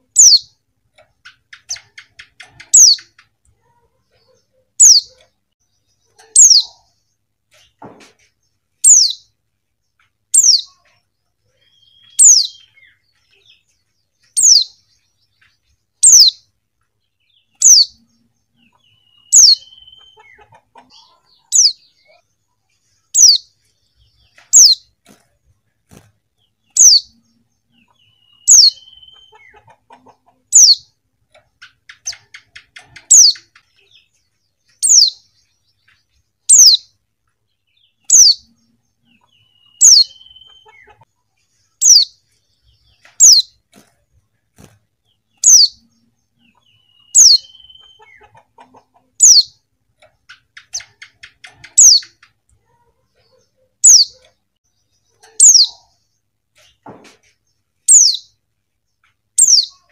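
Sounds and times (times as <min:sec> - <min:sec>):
soft rapid bird twitter: 0:00.0 - 0:03.4, 0:08.8 - 0:16.5, 0:17.2 - 0:25.0, 0:26.4 - 0:36.9, 0:37.8 - 0:43.7, 0:45.1 - 0:52.4, 0:57.6 - 0:58.4, 0:59.0 - 0:59.9.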